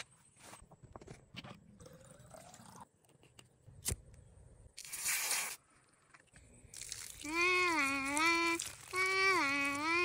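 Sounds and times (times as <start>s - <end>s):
water jetting from plastic bottle: 6.7s - 10.0s.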